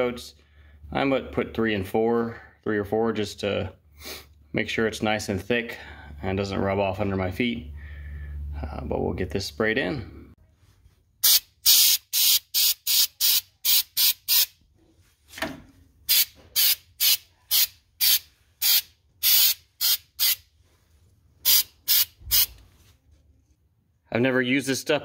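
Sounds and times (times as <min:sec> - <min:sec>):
aerosol can spraying bursts: 0:11.2 - 0:14.6, 0:16.1 - 0:20.4, 0:21.4 - 0:22.6.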